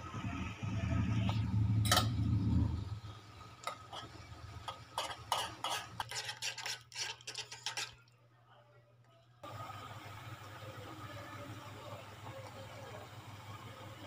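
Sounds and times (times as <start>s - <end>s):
low rumble: 0.0s - 3.5s.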